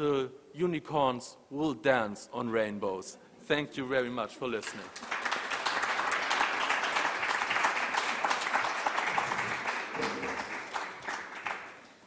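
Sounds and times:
audience clapping: 4.6 - 12.0.

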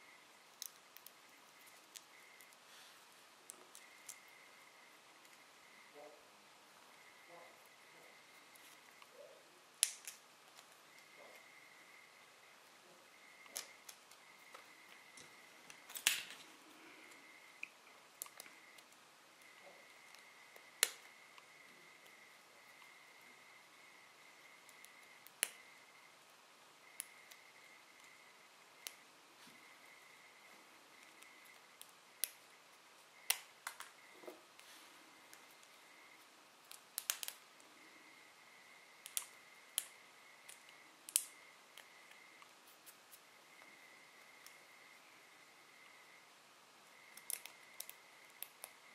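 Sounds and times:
small clicks and taps: 36.7 - 37.4, 39.0 - 42.5, 47.1 - 48.8.

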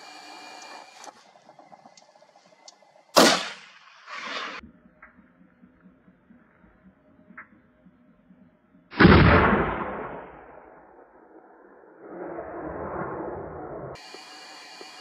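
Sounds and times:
rifle shot with echo: 3.2 - 4.6, 9.0 - 11.1.

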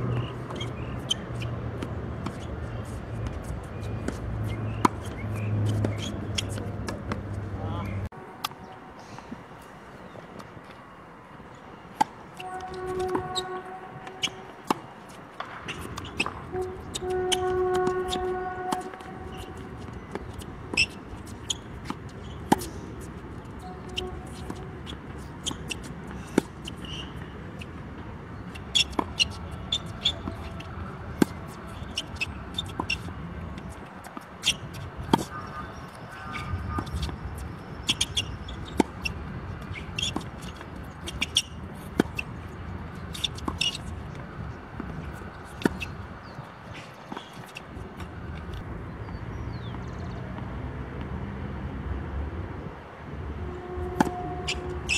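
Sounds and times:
tennis ball bouncing on court: 0.1 - 7.4, 12.0 - 46.4, 53.8 - 54.9
tennis ball off racquets: 0.1 - 7.5, 11.8 - 49.8, 53.8 - 54.9.

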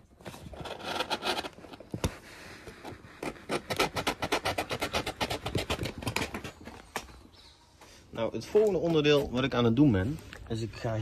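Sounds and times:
rubbing and scraping on wood: 0.0 - 7.2.

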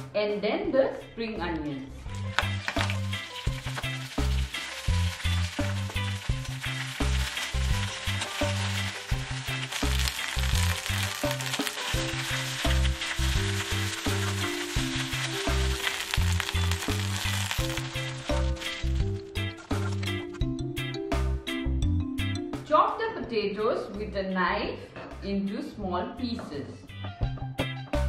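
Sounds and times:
background music with bass: 0.0 - 28.0
onions sizzling in oil: 2.1 - 20.2
metal spatula scraping wok: 2.1 - 20.4.

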